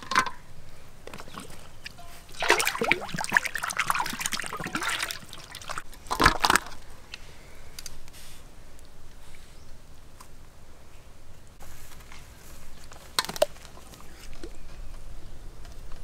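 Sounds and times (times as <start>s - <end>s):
water sloshing in a metal basin: 1.1s - 6.7s.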